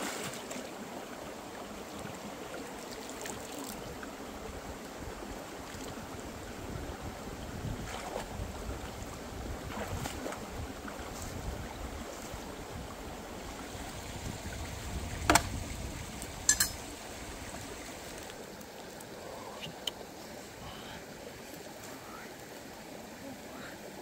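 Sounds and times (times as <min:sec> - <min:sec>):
stream water over rocks: 0:00.0 - 0:24.0.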